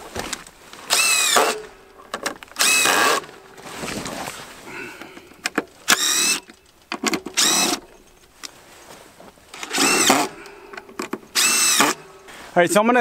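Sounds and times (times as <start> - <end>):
cordless drill motor: 0.9 - 1.7, 2.6 - 3.3, 5.9 - 6.5, 7.2 - 7.9, 9.6 - 10.5, 11.3 - 12.1
sharp clicks: 5.3 - 8.6.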